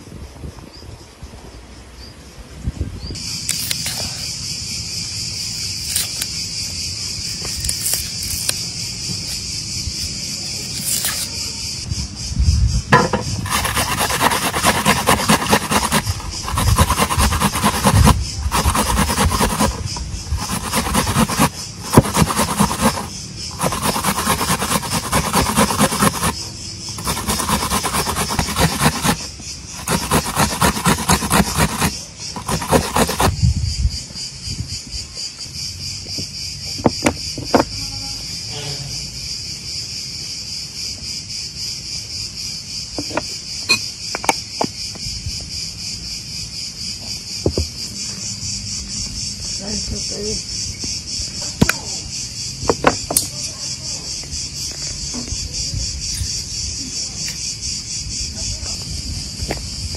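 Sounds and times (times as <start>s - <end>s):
high insect drone: 3.2s - 59.9s
onion grated on metal grater: 13.4s - 33.3s.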